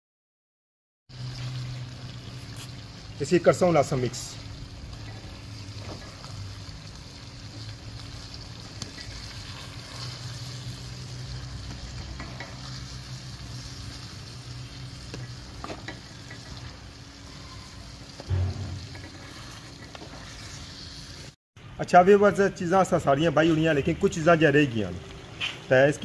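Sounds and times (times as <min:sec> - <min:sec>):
food sizzling in a metal pan: 0:01.1 - 0:21.4.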